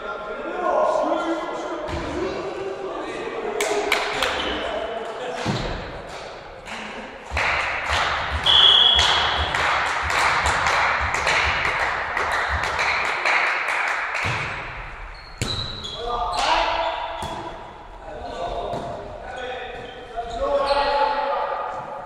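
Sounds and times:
volleyball strikes: 7.3s - 13.0s, 14.2s - 15.8s, 16.4s - 17.6s
whistle blast: 8.4s - 9.2s.

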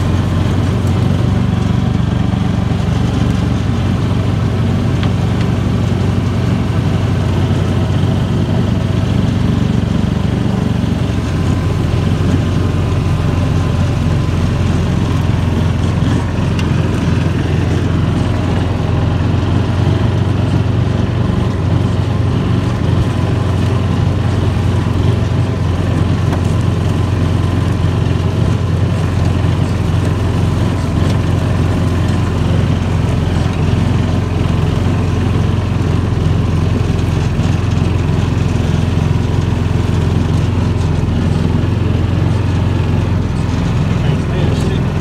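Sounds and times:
utility vehicle engine running: 0.0s - 45.0s.

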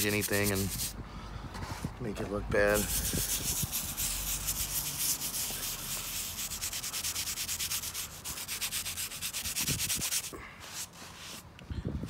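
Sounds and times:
wire brush scrubbing tile: 0.0s - 0.9s, 2.7s - 10.3s.

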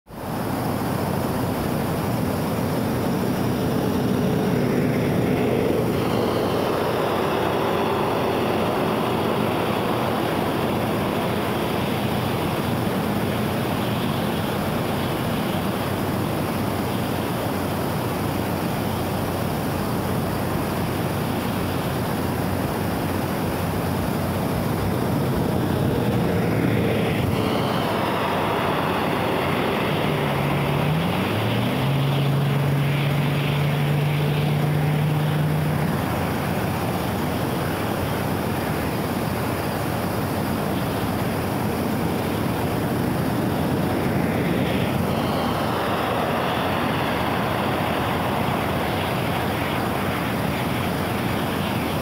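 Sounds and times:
distant engine hum: 0.1s - 52.0s
wind rumbling on microphone: 0.1s - 52.0s.

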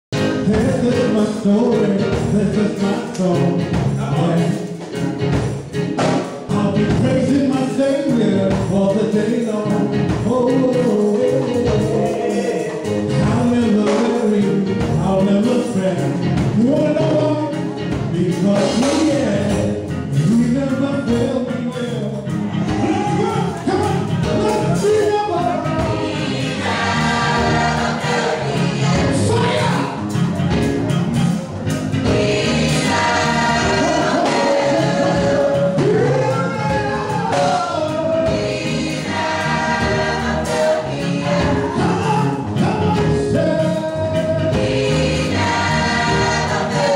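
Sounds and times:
band with drums: 0.1s - 46.9s
instrumental accompaniment with beat: 0.1s - 46.9s
man singing into microphone: 0.2s - 4.7s, 6.4s - 23.5s, 33.9s - 38.5s, 41.2s - 44.7s
choir singing: 10.5s - 15.6s, 22.5s - 30.2s, 31.9s - 46.9s.

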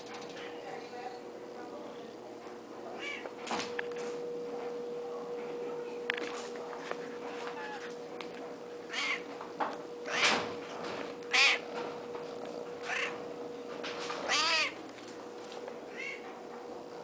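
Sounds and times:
kittens meowing: 8.9s - 9.2s.

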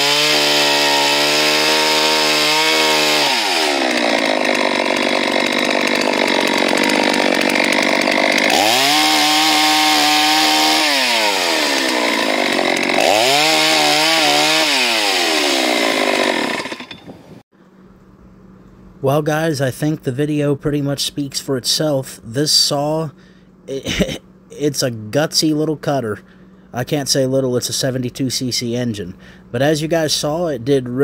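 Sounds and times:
chainsaw cutting wood: 0.0s - 17.4s.

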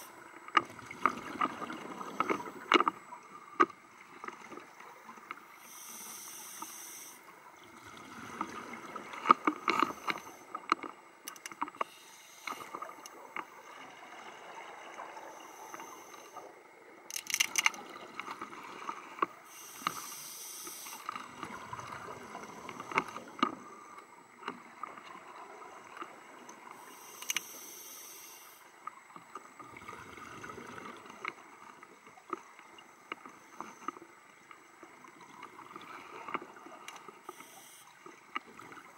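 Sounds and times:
regulator hissing inhalation: 5.6s - 7.3s, 11.8s - 12.8s, 19.5s - 21.2s, 26.8s - 28.7s, 37.3s - 37.9s.

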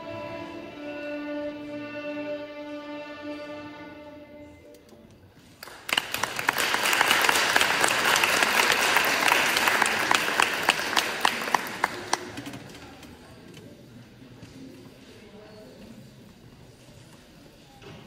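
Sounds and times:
audience applauding: 5.6s - 12.7s.

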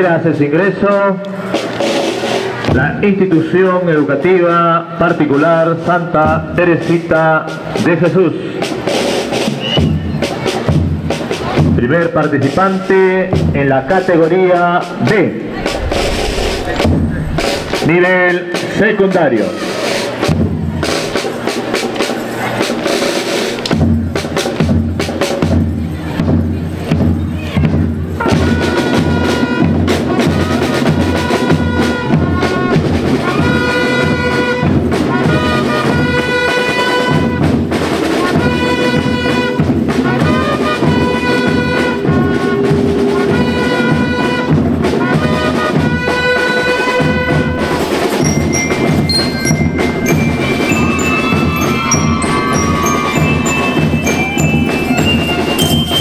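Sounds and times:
drums keeping a steady beat: 8.6s - 56.0s
melody on pitched instruments: 47.6s - 56.0s
ringing mallet percussion: 47.8s - 56.0s.

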